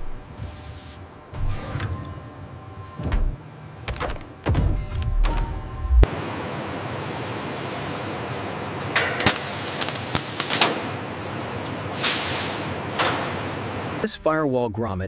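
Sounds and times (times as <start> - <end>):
factory noise: 0.0 - 14.4
compressed air hiss: 11.9 - 12.8.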